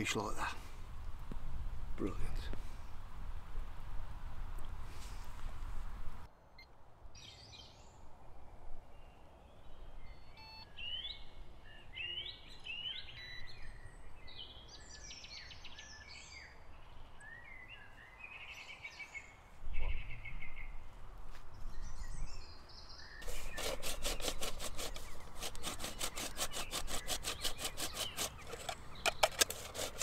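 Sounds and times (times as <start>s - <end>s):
songbirds chirping and trilling: 7.2s - 30.0s.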